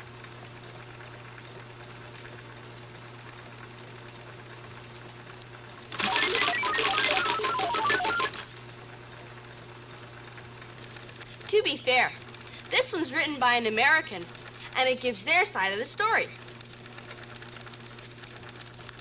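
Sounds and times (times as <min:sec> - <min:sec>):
rapid clicking with short beeps: 0:05.9 - 0:08.5
faint steady hum: 0:10.8 - 0:19.0.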